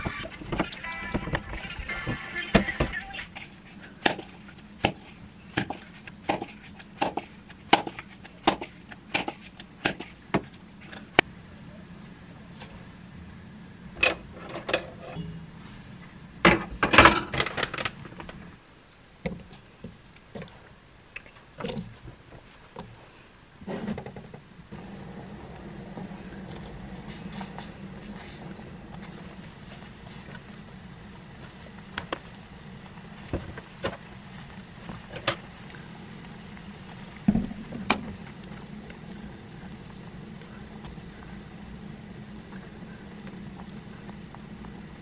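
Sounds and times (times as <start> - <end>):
kitchen knocks and clatters: 16.5 - 18.1
pot bubbling at the boil: 24.6 - 45.0.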